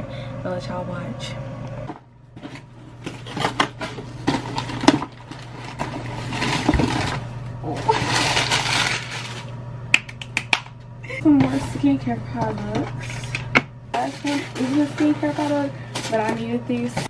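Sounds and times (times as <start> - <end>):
packing paper crinkling: 3.1 - 9.6, 14.0 - 17.0.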